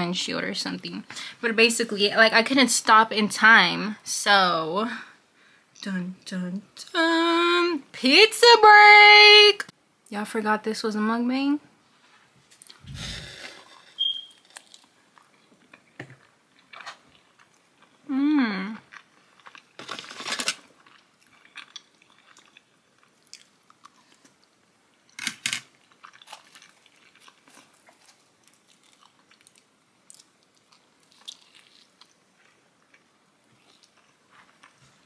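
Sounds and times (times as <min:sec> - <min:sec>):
chewing with wet mouth sounds: 0:14.4 - 0:18.0, 0:20.8 - 0:24.5, 0:25.8 - 0:35.0.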